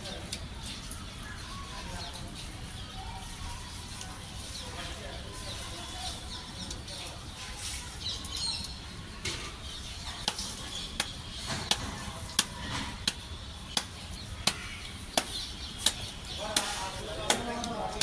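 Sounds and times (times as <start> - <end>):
palm slapping on dough: 10.2 - 18.0.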